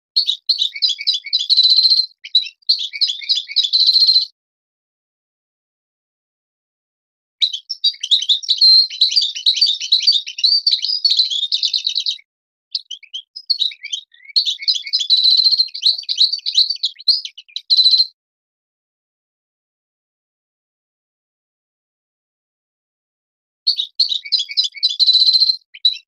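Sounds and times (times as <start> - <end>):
goldfinch singing: 0.2 - 4.3, 7.4 - 18.1, 23.7 - 26.0.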